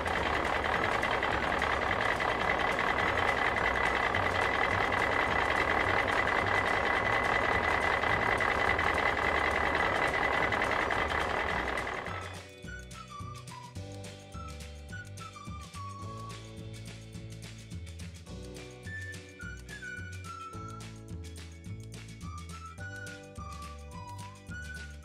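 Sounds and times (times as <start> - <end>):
high engine whine: 0.0 - 12.8
truck engine pulsing: 0.0 - 16.9.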